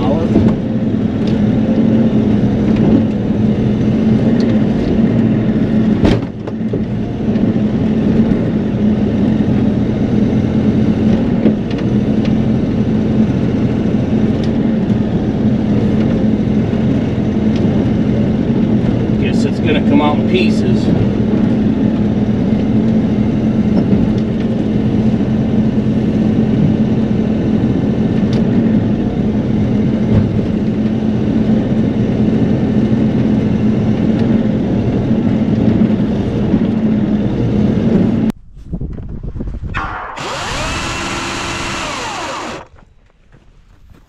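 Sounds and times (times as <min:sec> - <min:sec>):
diesel excavator engine running: 0:00.0 - 0:44.0
chainsaw revving: 0:39.8 - 0:42.7.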